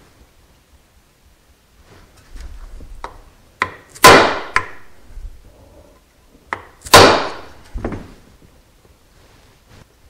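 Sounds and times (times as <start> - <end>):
mallet striking wooden block: 3.0 - 4.9.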